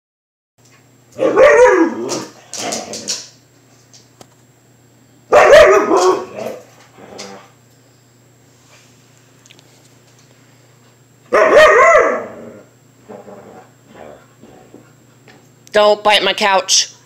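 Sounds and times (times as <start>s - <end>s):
husky howling: 1.2s - 2.3s, 11.3s - 14.2s.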